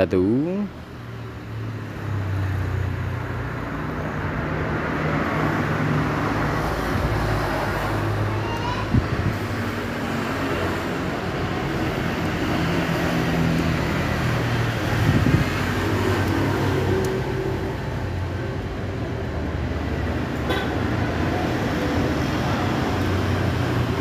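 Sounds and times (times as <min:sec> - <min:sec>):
road traffic drone: 0:00.0 - 0:24.0.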